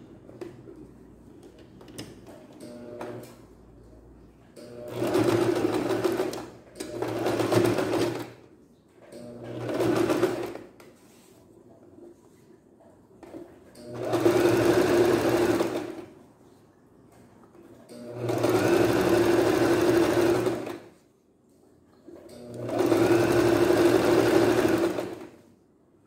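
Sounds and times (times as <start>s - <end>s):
sewing machine stitching: 4.6s - 8.4s, 9.2s - 10.7s, 13.3s - 16.1s, 17.9s - 20.9s, 22.1s - 25.4s.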